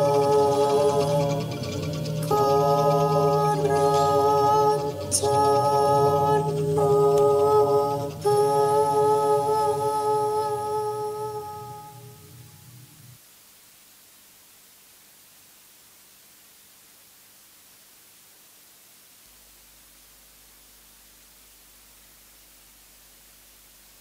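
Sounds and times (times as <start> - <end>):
slow vocal music with held notes: 0.0 - 13.2.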